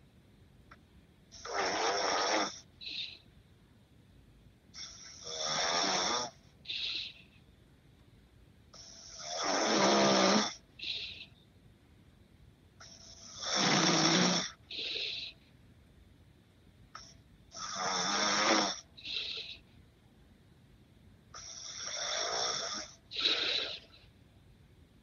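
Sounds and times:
man snoring: 1.4 - 2.6, 4.8 - 6.4, 9.0 - 10.6, 13.2 - 15.3, 17.6 - 19.5, 21.4 - 23.9.

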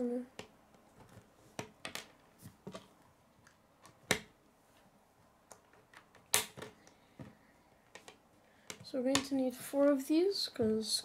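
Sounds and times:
plastic pieces snapping together: 0.3 - 4.4, 5.4 - 9.3.

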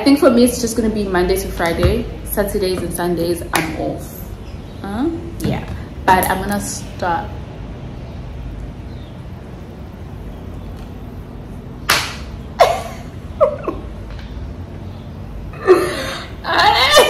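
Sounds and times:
sharp hand clap: 11.9 - 12.3
sharp smack: 11.9 - 12.3
high excited yelps: 16.4 - 17.0.

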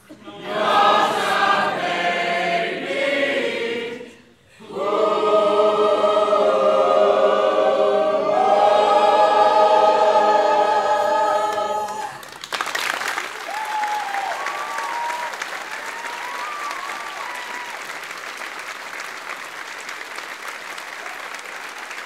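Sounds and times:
choir singing a chord: 0.1 - 12.1
audience applause: 11.5 - 22.0
audience whooping: 11.7 - 18.3.

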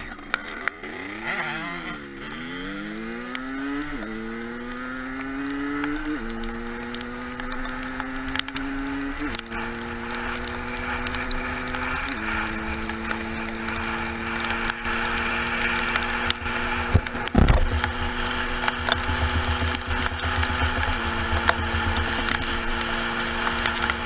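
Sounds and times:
dirt bike engine running: 0.0 - 24.0
single thump: 16.9 - 17.8.

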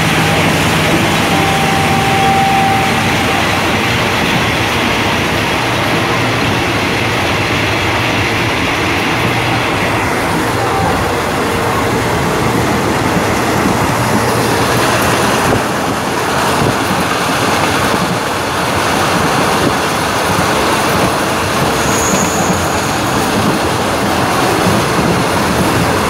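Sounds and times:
train wheels on rails: 0.0 - 26.0
high squeal: 21.7 - 23.1.

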